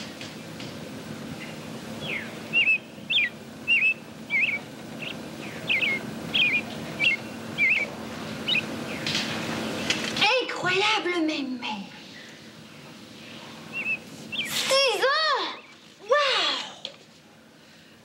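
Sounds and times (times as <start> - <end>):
faint low hum: 0.0 - 18.0
bird-like whistled chirps: 1.4 - 9.0, 13.7 - 14.7.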